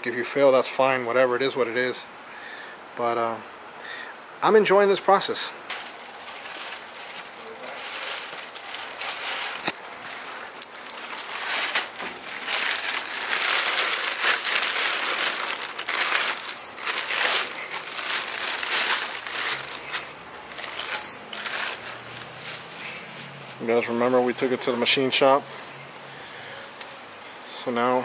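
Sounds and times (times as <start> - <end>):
plastic bags crinkling: 5.2 - 27.1.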